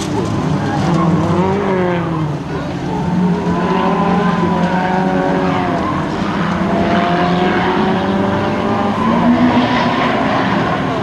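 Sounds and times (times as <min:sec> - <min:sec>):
race car engines revving: 0:00.0 - 0:11.0.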